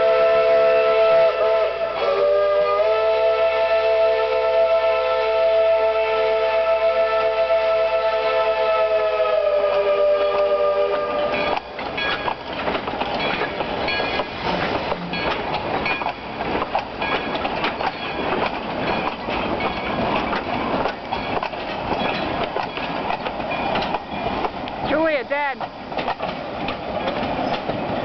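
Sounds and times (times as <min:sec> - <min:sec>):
steam locomotive whistle: 0:00.0 - 0:11.9
train wheels clicking on track: 0:09.3 - 0:28.0.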